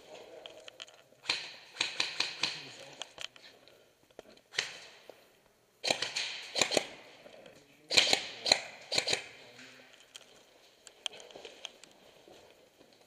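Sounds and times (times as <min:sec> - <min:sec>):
airsoft guns firing: 0:01.2 - 0:02.8, 0:05.8 - 0:07.1, 0:07.9 - 0:09.4.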